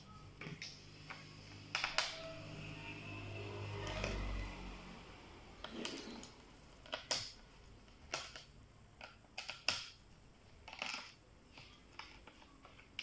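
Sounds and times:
plastic clicks: 0:06.8 - 0:10.0, 0:10.6 - 0:13.0.

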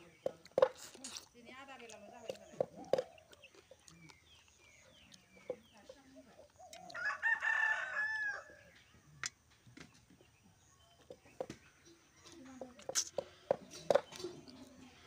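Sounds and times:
rooster crowing: 0:06.9 - 0:08.7.

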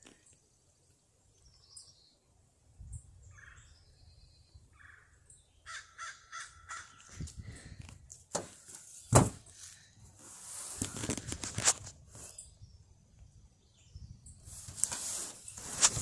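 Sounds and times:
crow cawing: 0:04.8 - 0:07.1.

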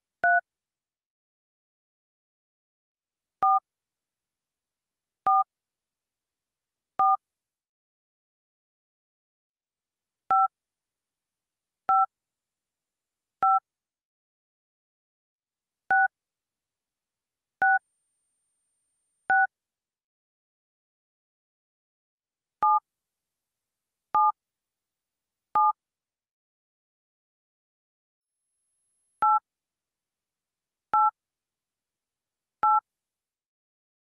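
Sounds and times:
telephone keypad beeps: 0:25.6 - 0:25.8, 0:32.6 - 0:32.8.

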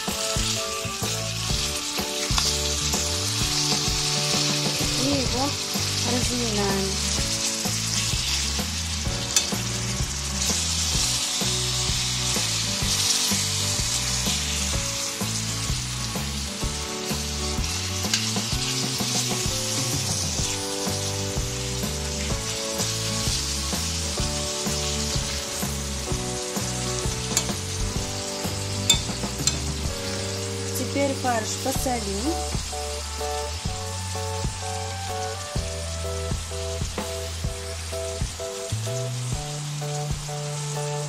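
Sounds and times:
meat sizzling in frying pan: 0:00.0 - 0:41.0
spoon stirring meat: 0:27.0 - 0:28.1, 0:28.7 - 0:30.2
spoon clicking against pan: 0:28.9 - 0:29.6.

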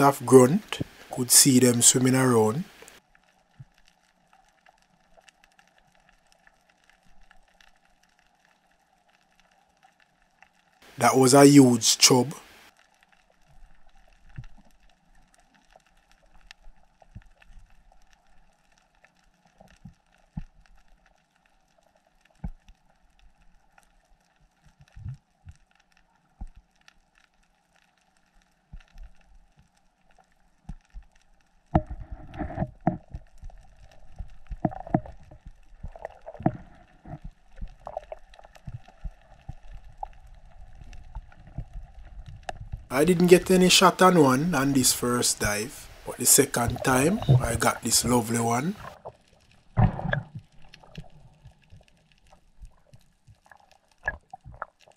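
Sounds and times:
faint underwater clicks and pops: 0:00.0 - 0:10.9, 0:12.4 - 0:54.9
water rushing against housing: 0:42.9 - 0:49.0.

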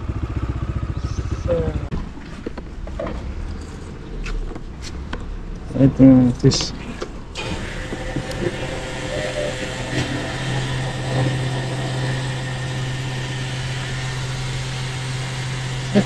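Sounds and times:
fuel pump humming: 0:06.5 - 0:16.0.

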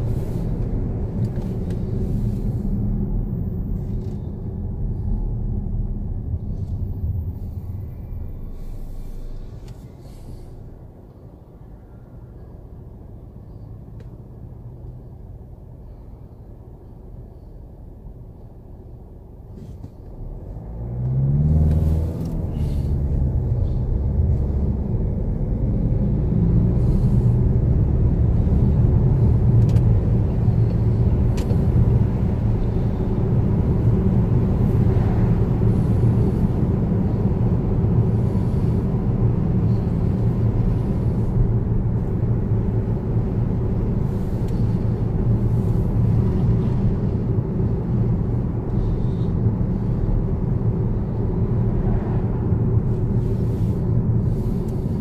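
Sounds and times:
car engine accelerating: 0:20.0 - 0:55.0.

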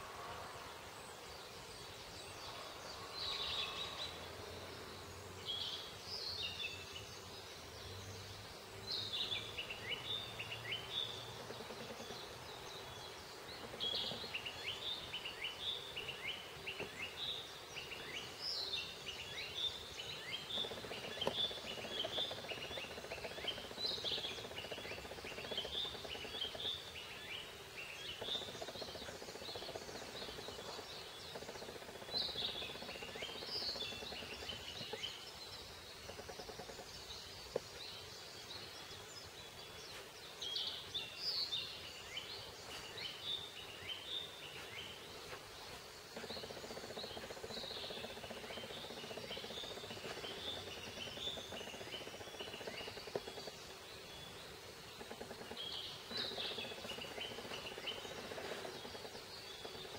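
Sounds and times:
faint background noise: 0:00.0 - 0:59.9
songbirds singing and chirping: 0:00.0 - 0:59.9.

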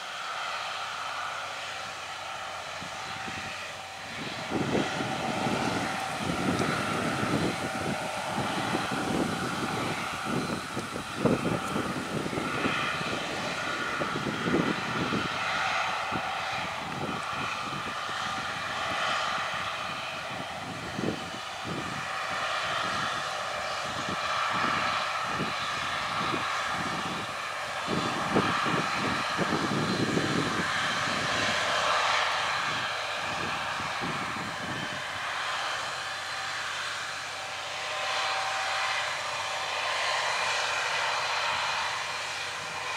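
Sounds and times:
tractor diesel engine running: 0:00.0 - 0:15.4.

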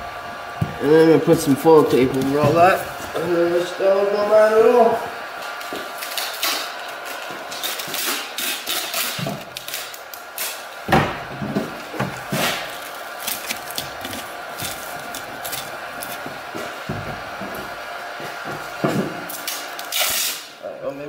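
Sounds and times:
foil tape crinkling: 0:05.4 - 0:10.9, 0:11.6 - 0:17.8, 0:19.2 - 0:20.6
loud knock: 0:10.9 - 0:12.1.

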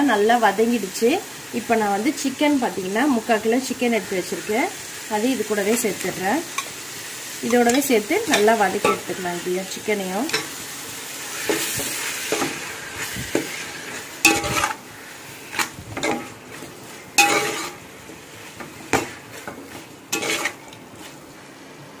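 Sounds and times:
chicken sizzling: 0:00.0 - 0:22.0
ladle scraping metal pot: 0:13.4 - 0:14.8, 0:15.5 - 0:16.5, 0:17.2 - 0:17.8, 0:18.9 - 0:20.8.

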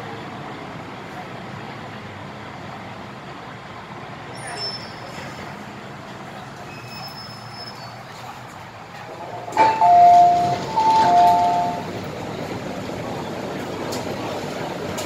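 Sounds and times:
train humming: 0:09.0 - 0:15.0
two-note door chime: 0:09.6 - 0:11.8.

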